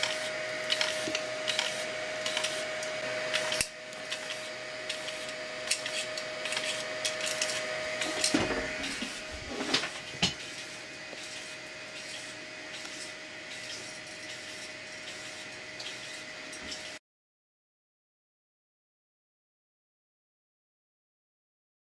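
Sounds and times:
stepper motor whine with ticks: 0.0 - 17.0.

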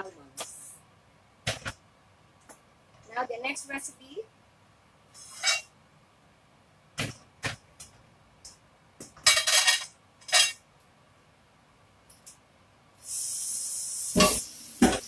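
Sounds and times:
metal pots and pans clinking: 9.2 - 10.6, 14.2 - 15.0
loud steady hiss: 12.8 - 15.0.

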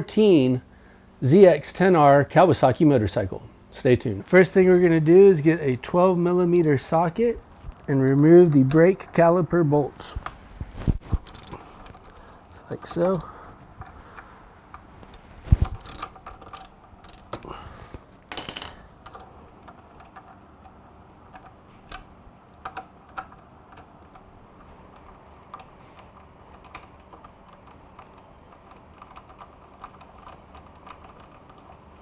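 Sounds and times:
socket ratchet clicking: 15.8 - 17.4, 18.5 - 31.9.

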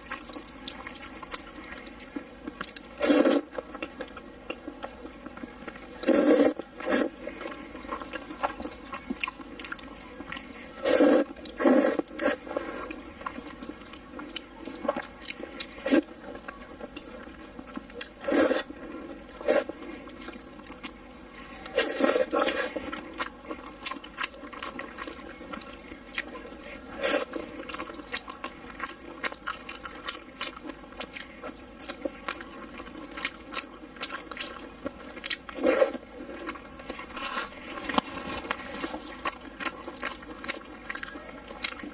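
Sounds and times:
wet chewing and lip-smacking: 0.0 - 10.6, 11.2 - 41.9
slurping noodles: 3.0 - 3.6, 6.0 - 8.2, 10.8 - 13.0, 18.2 - 19.7, 21.8 - 22.8.

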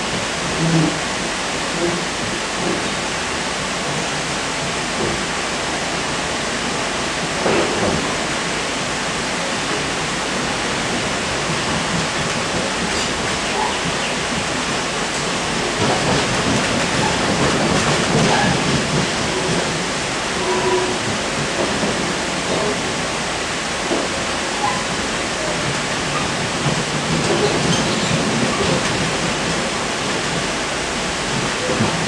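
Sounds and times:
train wheels rumbling on rail: 0.0 - 32.0
train jolt: 7.2 - 32.0.

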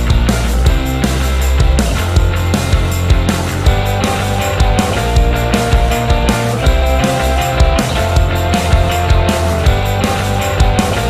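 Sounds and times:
steady drum beat: 0.0 - 11.0.

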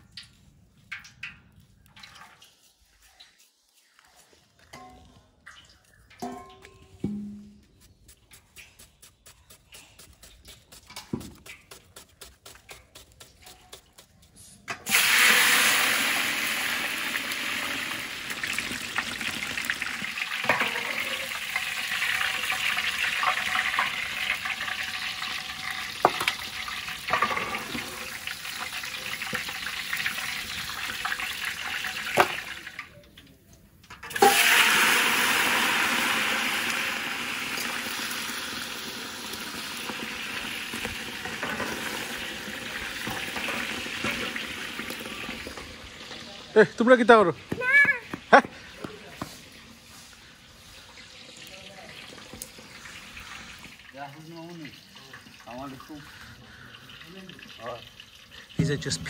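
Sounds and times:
food sizzling in hot oil: 14.9 - 32.8, 34.1 - 47.1, 50.6 - 59.0.

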